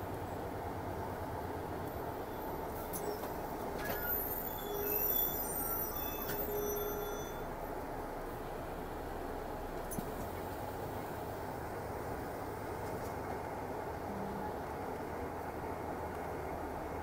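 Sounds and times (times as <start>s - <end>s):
car road and engine noise: 0.0s - 17.0s
faint short high tones: 3.0s - 7.5s.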